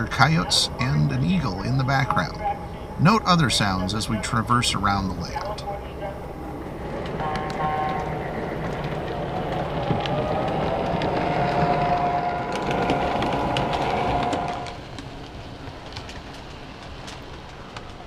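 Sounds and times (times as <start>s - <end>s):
model train rumbling over rails: 0.0s - 18.0s
steady multi-note horn tone: 7.2s - 8.1s, 11.3s - 14.8s.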